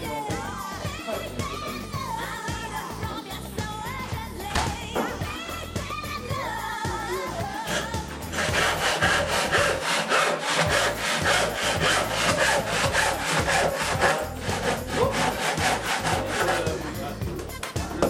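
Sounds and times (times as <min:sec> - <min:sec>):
hand saw cutting wood: 0:07.5 - 0:17.2.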